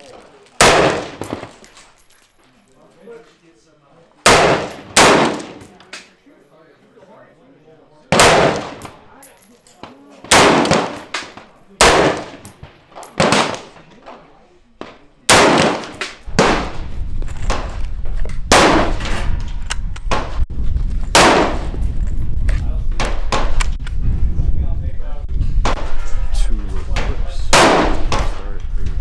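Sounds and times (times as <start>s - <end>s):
loud rifle gunshots: 0.6s - 1.6s, 4.2s - 5.7s, 8.1s - 9.0s, 10.3s - 13.8s, 15.3s - 16.8s, 18.5s - 19.3s, 21.1s - 21.8s, 27.5s - 28.4s.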